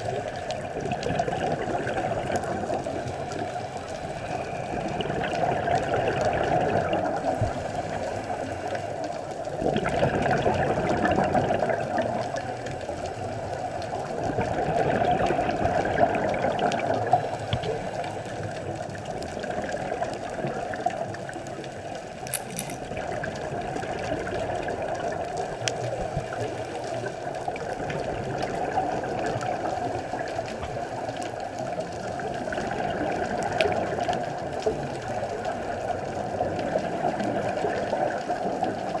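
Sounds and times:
underwater bubbling exhalations: 0.1 - 8.5, 9.5 - 12.6.

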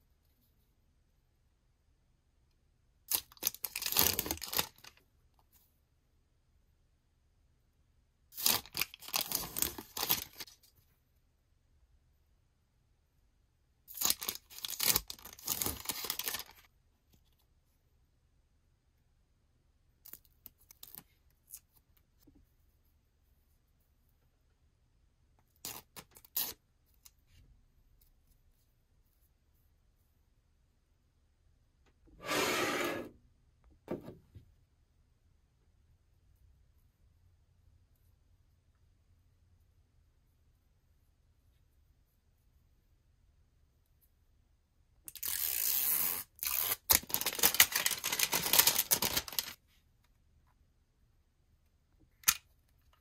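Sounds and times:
plastic film ripping: 3.1 - 4.9, 8.4 - 10.4, 13.9 - 16.6, 45.1 - 49.6
plastic film crinkling: 3.1 - 5.0, 8.4 - 10.5, 13.9 - 16.7, 45.2 - 49.6
paper backing peeling crackly: 14.0 - 16.7, 46.5 - 49.6.

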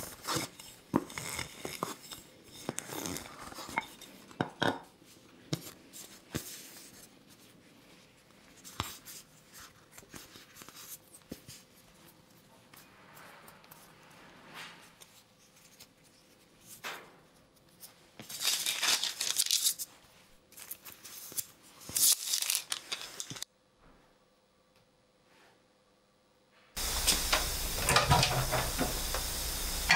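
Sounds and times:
baking paper crinkling: 17.4 - 23.4.

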